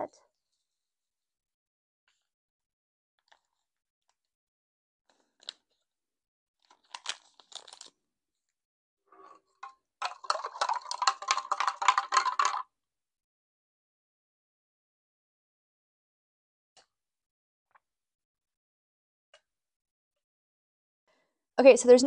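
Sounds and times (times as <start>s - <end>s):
foil packet crinkling: 6.6s - 8.0s, 10.0s - 12.6s
spoon clinking in glass mug: 10.0s - 12.6s.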